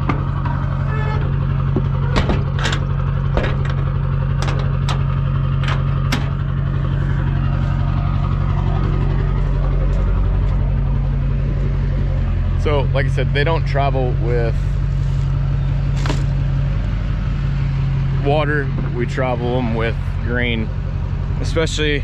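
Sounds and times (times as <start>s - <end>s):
sharp knocks and clanks: 0.0s - 6.5s
pickup truck engine idling: 0.0s - 22.0s.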